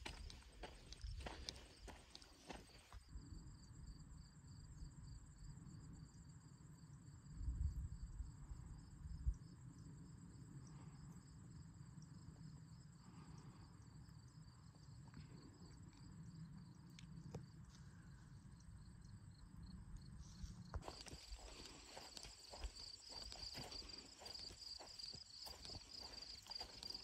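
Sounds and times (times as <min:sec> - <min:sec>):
footsteps: 0:00.0 - 0:03.0, 0:20.7 - 0:27.0
crickets chirping: 0:00.0 - 0:27.0.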